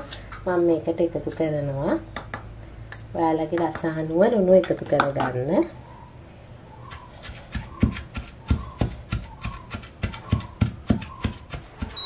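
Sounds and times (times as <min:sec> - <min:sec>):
wooden pestle pounding in mortar: 0:06.9 - 0:12.0.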